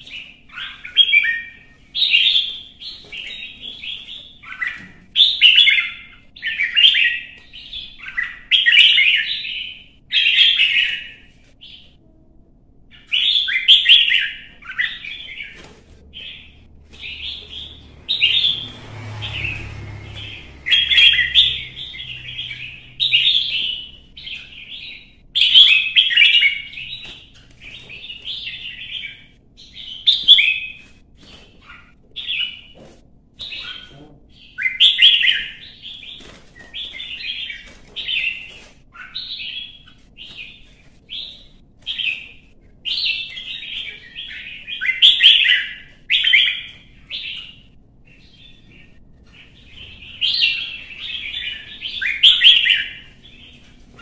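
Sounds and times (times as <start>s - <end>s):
bird chirping song: 0.0s - 12.0s, 12.9s - 32.8s, 33.4s - 54.0s.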